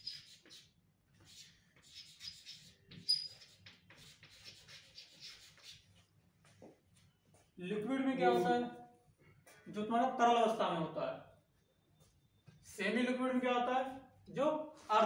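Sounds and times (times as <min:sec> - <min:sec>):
chalk scratching on blackboard: 0:00.0 - 0:06.1
chalk squeak: 0:00.0 - 0:06.1.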